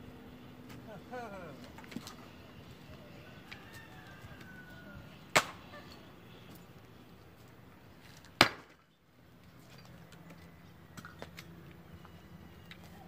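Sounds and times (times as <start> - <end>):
axe blows splitting logs: 5.3 - 5.6, 8.3 - 8.8.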